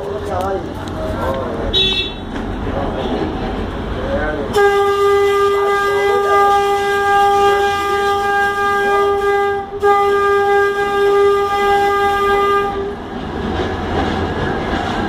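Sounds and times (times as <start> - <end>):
tram running noise: 0.0 - 15.0
tram horn: 1.7 - 2.4, 4.5 - 13.1.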